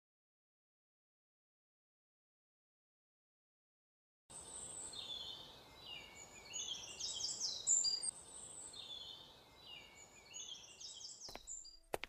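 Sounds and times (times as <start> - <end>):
birds chirping: 4.3 - 12.0.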